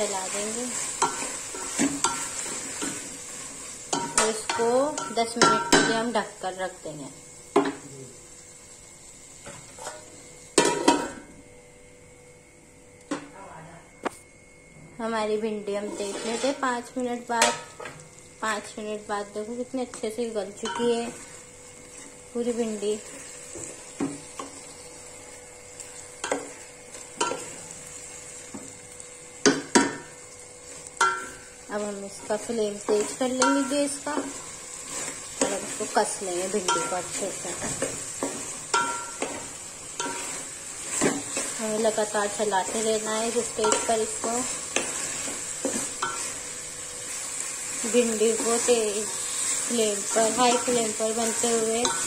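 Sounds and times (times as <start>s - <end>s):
low steady sizzle: 0.0s - 52.0s
spatula knocking and scraping pot: 36.6s - 41.6s, 42.7s - 46.4s.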